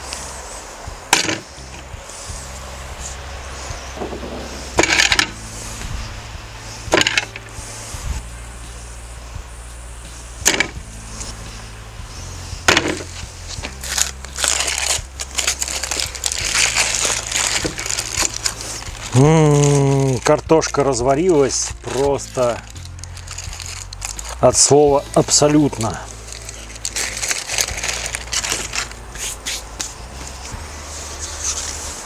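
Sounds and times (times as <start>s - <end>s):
aluminium foil crinkling: 12.7s - 30.5s.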